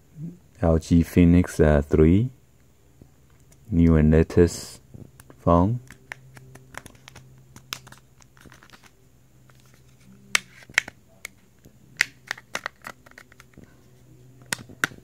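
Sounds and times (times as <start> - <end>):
faint low hum: 0.0 - 15.0
plastic phone cover clicking: 5.9 - 8.9, 10.4 - 11.0, 12.0 - 13.6.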